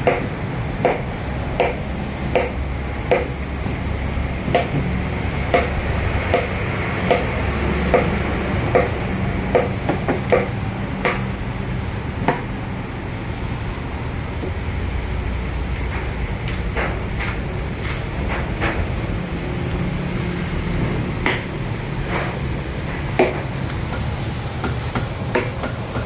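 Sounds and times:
mallet striking chisel: 0.0s - 3.4s, 4.4s - 4.9s, 5.5s - 11.3s, 21.2s - 21.5s, 23.2s - 26.0s.

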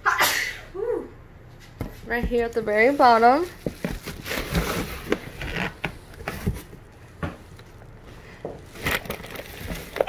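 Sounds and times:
plastic packages rustling and scraping: 2.7s - 10.0s
bubble wrap rustling: 2.8s - 6.8s, 8.6s - 10.0s.

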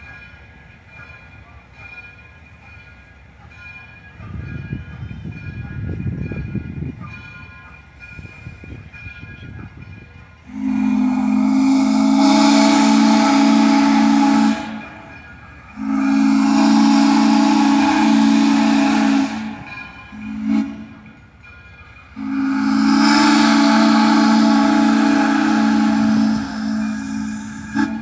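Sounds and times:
steam locomotive whistle blasts: 10.4s - 21.1s, 22.2s - 28.0s
steam hissing: 10.4s - 28.0s.

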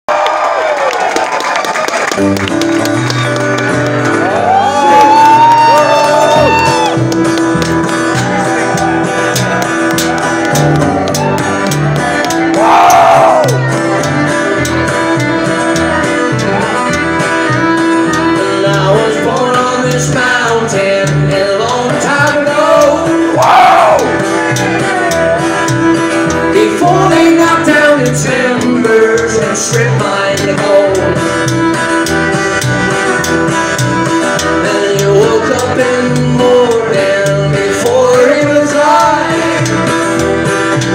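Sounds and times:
fiddle: 2.1s - 40.9s
upright bass: 2.1s - 40.9s
strummed acoustic guitar: 2.2s - 40.9s
person singing: 12.3s - 33.2s, 34.1s - 40.9s.

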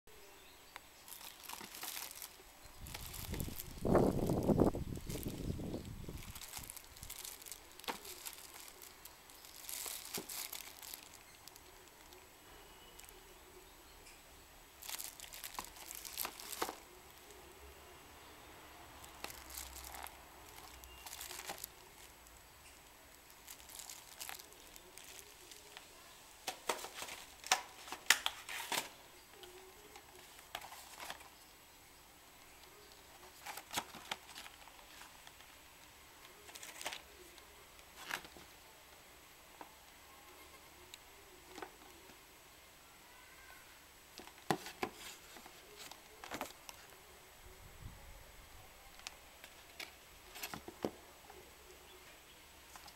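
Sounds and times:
plastic bag crinkling: 1.0s - 12.2s, 14.8s - 17.4s, 19.0s - 22.3s, 23.1s - 31.4s, 32.9s - 35.8s, 36.4s - 37.1s.

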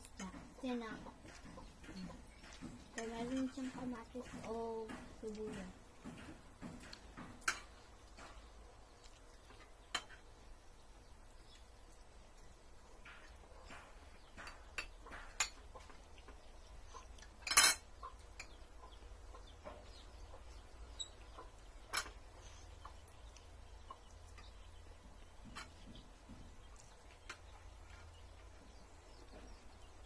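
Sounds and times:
cutlery clinking on plates: 17.4s - 18.6s.

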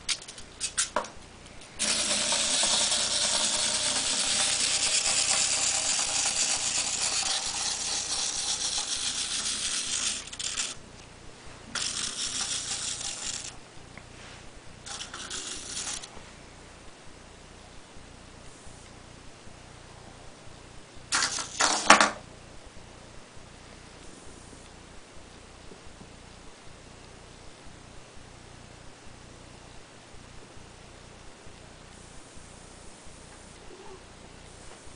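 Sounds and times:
clockwork toy whirring: 1.8s - 10.8s, 11.7s - 13.6s, 14.8s - 16.1s, 21.1s - 22.1s
wind-up toy clicks: 1.8s - 10.8s, 11.7s - 13.6s, 14.9s - 16.1s, 21.1s - 21.8s.

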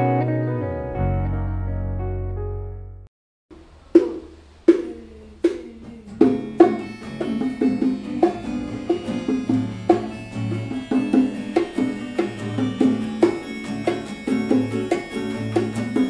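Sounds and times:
acoustic guitar picking notes: 0.0s - 2.0s, 4.0s - 16.0s
hand drums: 3.5s - 16.0s.

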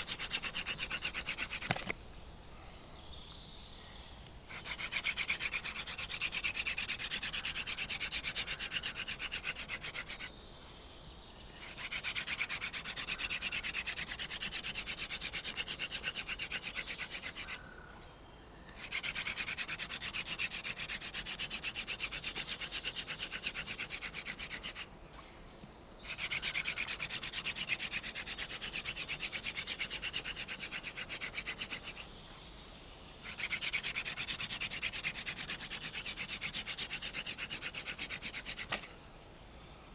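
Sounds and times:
hand drill rasping on wood: 0.0s - 1.9s, 4.5s - 10.3s, 11.6s - 17.6s, 18.8s - 24.8s, 26.1s - 32.0s, 33.2s - 38.9s.

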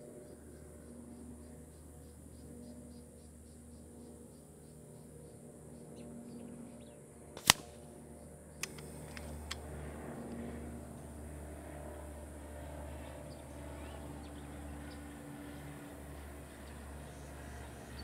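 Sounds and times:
low outdoor background: 0.0s - 18.0s
air rifle shot crack: 7.4s - 7.9s, 8.6s - 9.7s
faint clicks: 8.6s - 9.6s.

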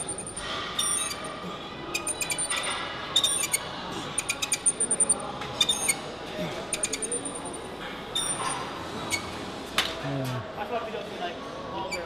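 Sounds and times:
cable machine clicking and squeaking: 0.0s - 6.0s, 6.7s - 7.6s, 8.2s - 9.4s.

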